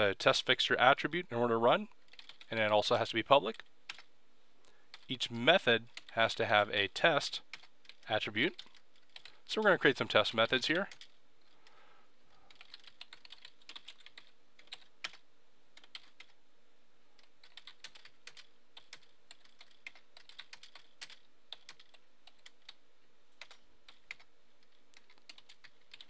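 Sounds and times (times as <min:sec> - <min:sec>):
low steady hiss: 0:00.0 - 0:26.0
computer keyboard typing: 0:02.0 - 0:02.6, 0:03.4 - 0:04.1, 0:04.9 - 0:05.1, 0:05.9 - 0:06.2, 0:07.5 - 0:09.4, 0:10.6 - 0:11.6, 0:12.5 - 0:15.2, 0:15.8 - 0:16.4, 0:17.2 - 0:22.8, 0:23.4 - 0:26.0.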